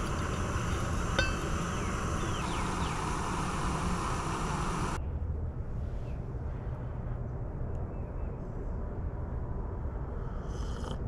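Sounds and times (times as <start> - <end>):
camp stove burner hissing: 0.0 - 5.0
hot water pouring: 0.0 - 5.0
metallic clink: 0.7 - 1.6.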